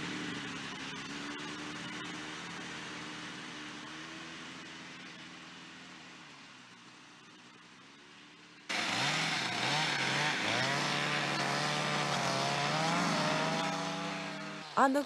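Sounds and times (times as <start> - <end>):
chainsaw cutting into ice: 8.7 - 14.2.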